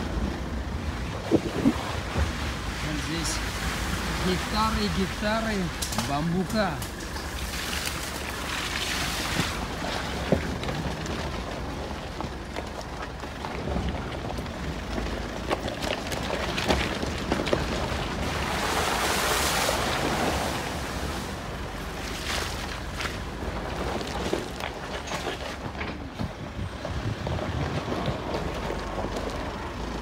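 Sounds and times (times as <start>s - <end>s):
wind buffeting microphone: 0.0s - 2.8s, 26.0s - 30.0s
tyres rumbling over gravel: 0.0s - 30.0s.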